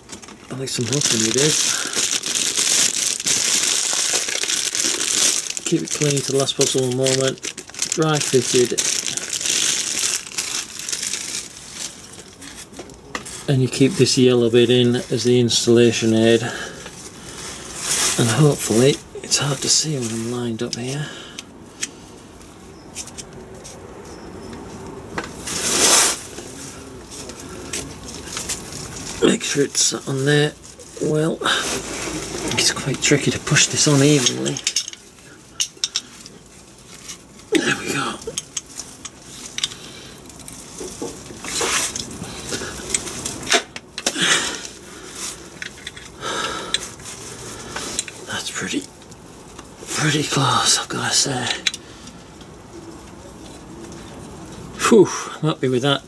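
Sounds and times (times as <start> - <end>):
light clicks and scuffs: 21.8 - 29.2
man breathing hard: 44.1 - 48.1.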